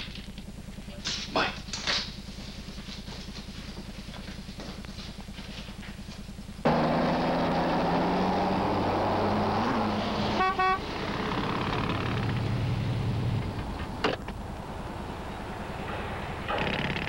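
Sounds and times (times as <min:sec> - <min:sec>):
car running in traffic: 0:01.8 - 0:17.0
car horn toots: 0:10.2 - 0:11.1.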